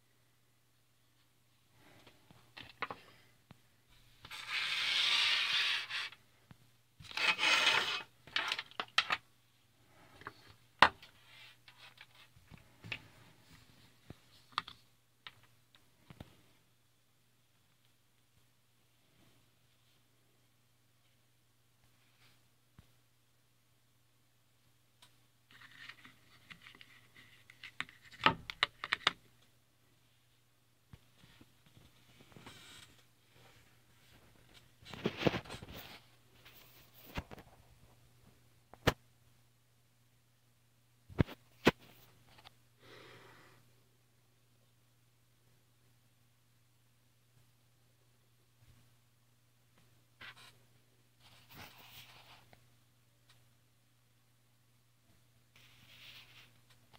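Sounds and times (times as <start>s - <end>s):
rustling of tools on desk: 4.2s - 9.2s, 31.0s - 37.6s.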